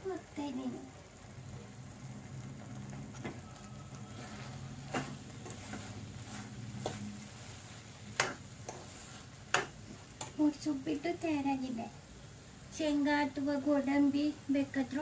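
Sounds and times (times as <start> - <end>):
spoon stirring and scraping pan: 2.3 - 11.2
spoon knocking against pan: 8.1 - 8.9, 9.5 - 10.4.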